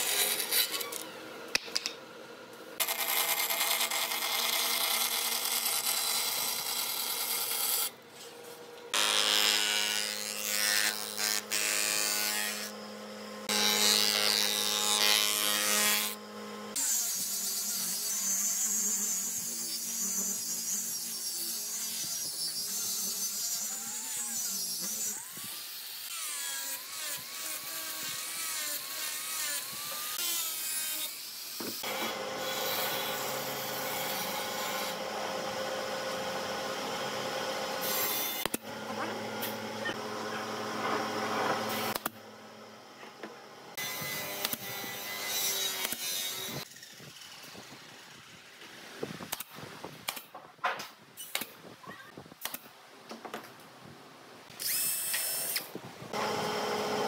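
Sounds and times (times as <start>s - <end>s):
power tool motor running: 19.0s - 46.8s, 54.6s - 57.0s.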